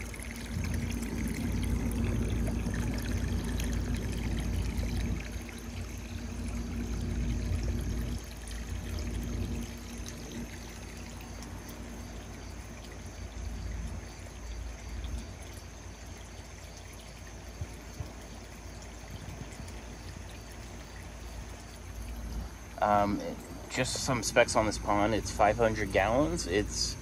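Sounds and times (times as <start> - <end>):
low rumble: 0.0 - 10.6
water pouring into a pond: 0.0 - 27.0.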